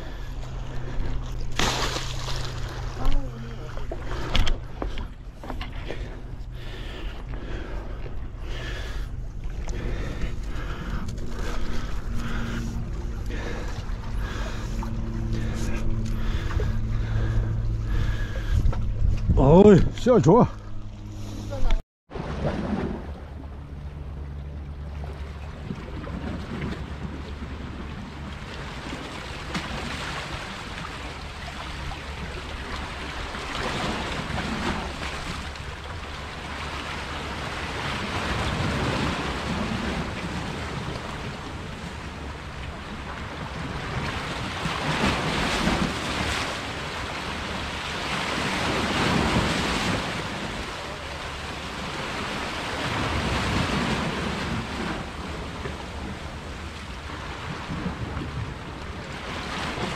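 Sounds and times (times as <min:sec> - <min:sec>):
wind rumbling on microphone: 0:02.2 - 0:59.9
waves washing against rocks: 0:28.1 - 0:59.9.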